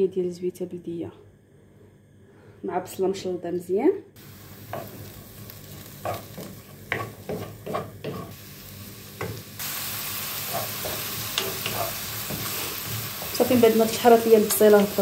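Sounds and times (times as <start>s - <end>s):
onion sizzling in oil: 4.2s - 15.0s
spoon scraping pan: 4.7s - 8.4s, 10.4s - 14.0s.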